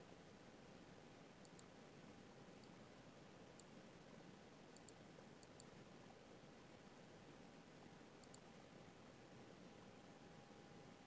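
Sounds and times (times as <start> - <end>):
soft high clicks: 1.4 - 1.7, 2.6 - 2.9, 3.5 - 3.8, 4.7 - 5.8, 8.2 - 8.6.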